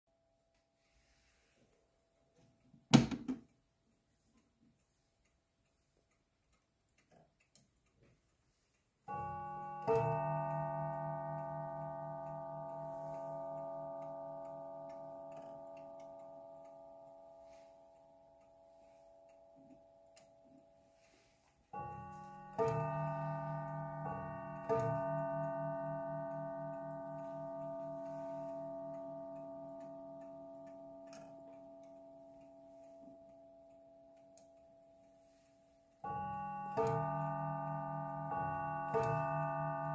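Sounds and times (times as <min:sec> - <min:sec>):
clock ticking faintly: 0:00.5 - 0:39.9
mantel clock striking: 0:09.1 - 0:39.9.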